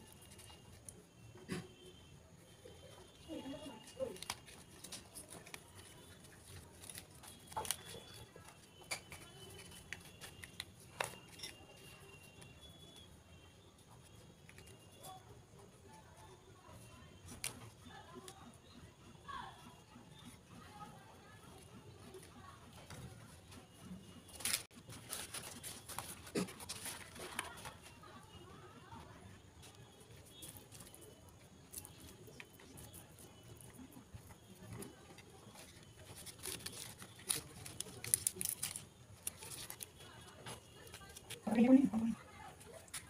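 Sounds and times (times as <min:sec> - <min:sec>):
leaf crinkling and rustling: 0:03.3 - 0:12.3, 0:24.3 - 0:27.8, 0:34.6 - 0:42.0.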